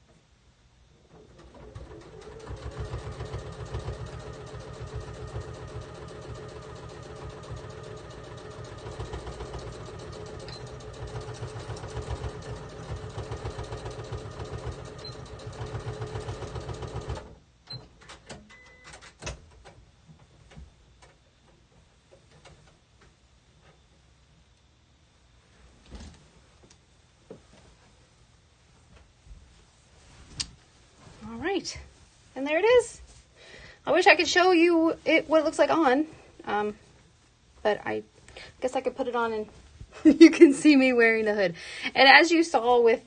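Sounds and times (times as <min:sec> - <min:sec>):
sewing machine stitching: 0:01.1 - 0:17.4.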